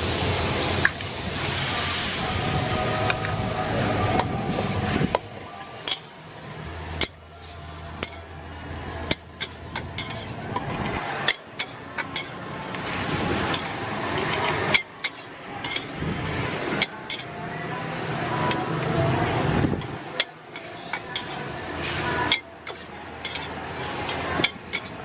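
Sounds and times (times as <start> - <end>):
frying hiss: 0.0 - 25.0
metal spatula scraping wok: 5.8 - 17.4, 19.7 - 25.0.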